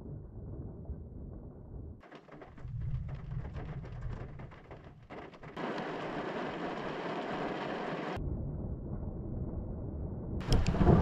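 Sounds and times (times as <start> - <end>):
rain: 0.0 - 8.2, 10.4 - 11.0
distant thunder rumbling: 0.0 - 11.0
gusty wind: 5.6 - 11.0.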